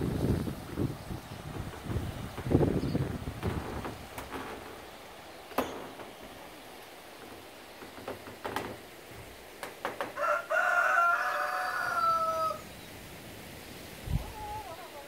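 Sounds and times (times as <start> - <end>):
rooster crowing: 10.0 - 12.7.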